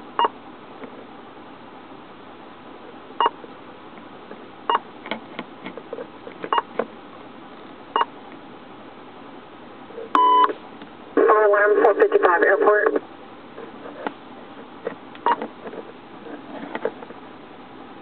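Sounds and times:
radio keypad beeps: 0:10.2 - 0:10.6.

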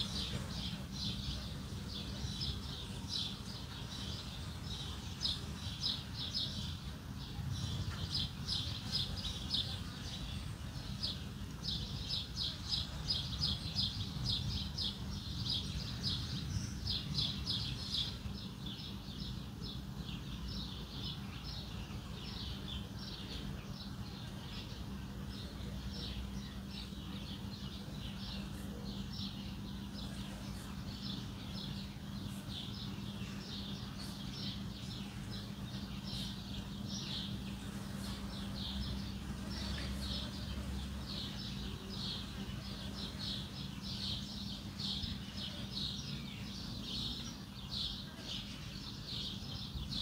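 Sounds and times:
low background hum: 0:00.0 - 0:50.0
small birds chirping: 0:00.0 - 0:50.0.

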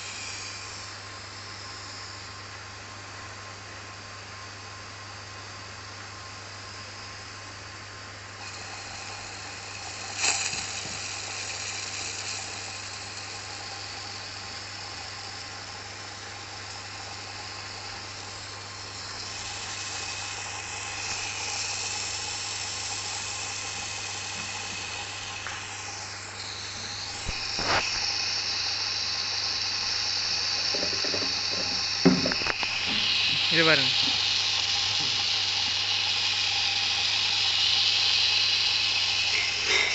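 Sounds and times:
steady low hum: 0:00.0 - 0:39.9
water trickling into pipe: 0:08.4 - 0:39.9.

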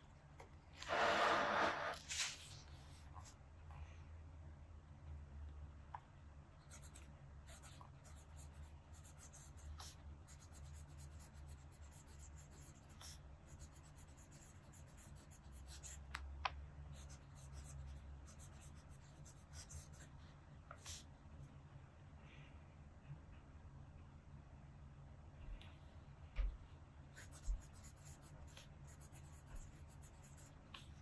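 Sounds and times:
pen nib scratching paper: 0:06.6 - 0:16.1, 0:16.9 - 0:20.2, 0:27.1 - 0:31.0.

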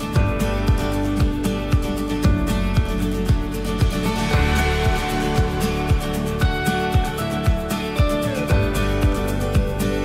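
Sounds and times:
kick drum beat: 0:00.0 - 0:09.9
sustained chords: 0:03.4 - 0:08.2.

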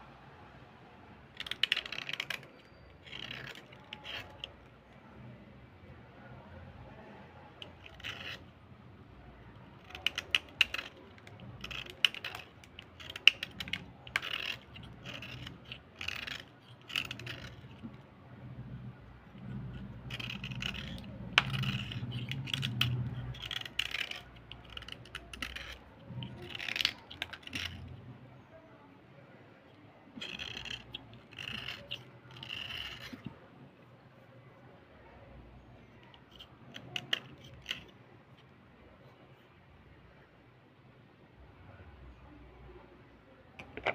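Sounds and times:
light scraping: 0:01.3 - 0:05.2, 0:06.9 - 0:28.6, 0:29.6 - 0:39.5, 0:43.6 - 0:43.9
dull rubbing: 0:01.4 - 0:04.7, 0:07.5 - 0:28.1, 0:30.1 - 0:33.5.

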